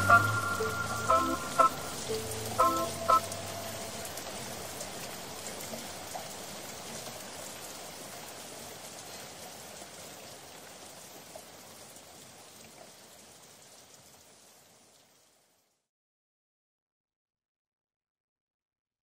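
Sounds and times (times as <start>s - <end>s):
raindrop ticks: 0.0s - 10.0s
rain hiss: 0.0s - 15.9s.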